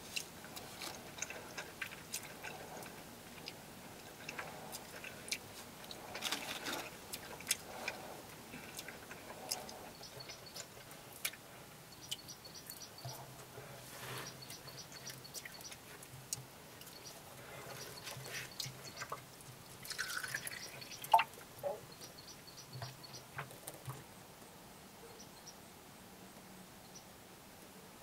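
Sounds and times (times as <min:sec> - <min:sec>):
water drips: 0:07.2 - 0:13.2, 0:14.3 - 0:24.0
faint high chirping: 0:11.8 - 0:13.4, 0:14.1 - 0:15.8, 0:19.9 - 0:23.4.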